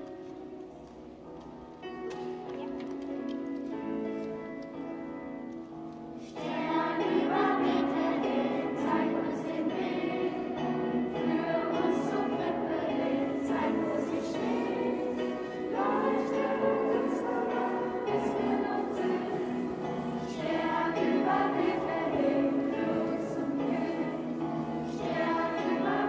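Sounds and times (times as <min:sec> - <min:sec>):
children singing together: 0:06.3 - 0:26.0.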